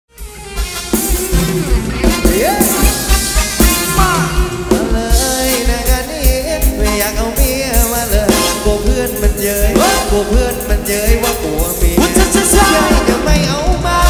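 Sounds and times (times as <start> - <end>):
electric guitar: 0.1 - 14.0
steady drum beat: 0.1 - 14.0
singer with vibrato voice: 2.0 - 14.0.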